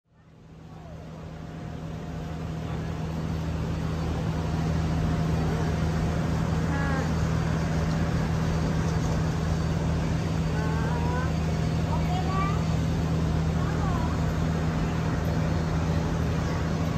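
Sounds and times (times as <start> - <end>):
general street noise: 0.1 - 16.9
low engine hum: 0.1 - 16.9
faint voice: 6.6 - 7.3.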